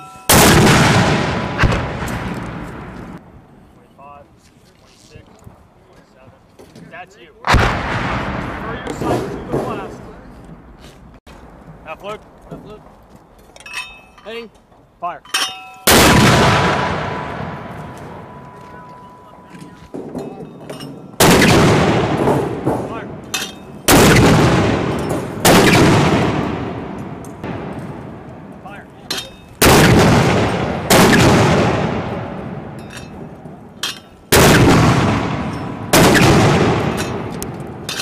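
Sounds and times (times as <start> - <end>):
mortar blasts with rolling echo: 0.3 - 3.2, 7.4 - 10.3, 15.9 - 18.5, 21.2 - 28.8, 29.6 - 37.9.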